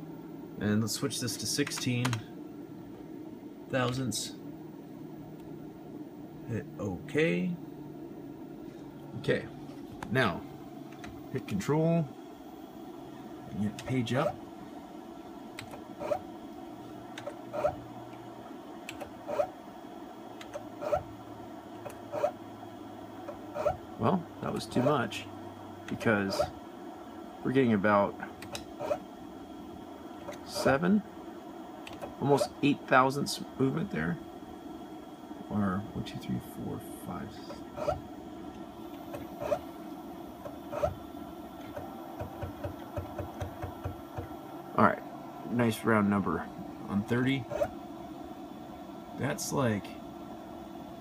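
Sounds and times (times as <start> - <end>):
steady low hum: 0.0 - 51.0
stepper motor steps: 15.5 - 19.5, 20.3 - 21.1, 21.8 - 22.4, 23.2 - 25.2, 25.8 - 26.6, 28.2 - 29.1, 31.8 - 32.7, 37.2 - 39.8, 40.4 - 44.4.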